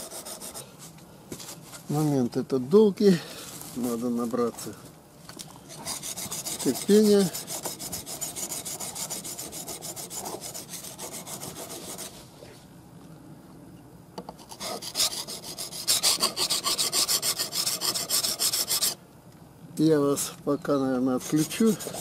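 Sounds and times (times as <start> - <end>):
chisel scraping on whetstone: 5.7 - 12.1, 21.3 - 22.0.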